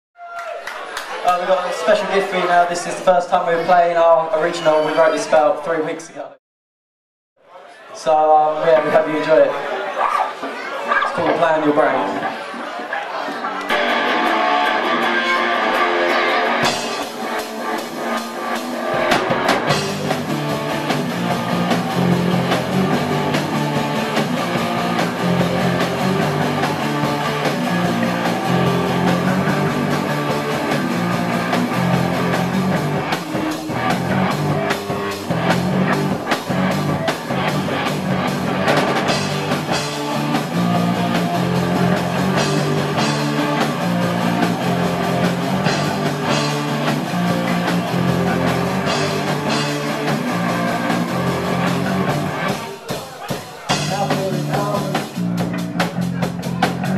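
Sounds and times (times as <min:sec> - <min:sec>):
electric guitar: 0:13.2 - 0:53.0
live rock band playing: 0:13.2 - 0:56.9.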